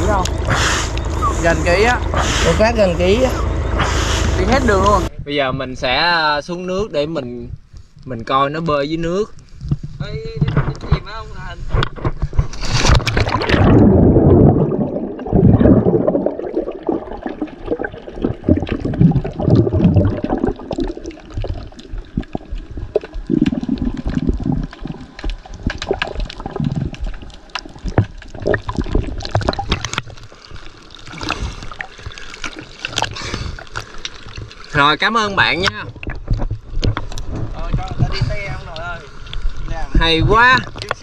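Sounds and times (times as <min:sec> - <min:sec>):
underwater clicks: 0:11.7 - 0:34.8
underwater gurgling and bubbling: 0:12.3 - 0:40.8
splash into water: 0:12.5 - 0:20.4.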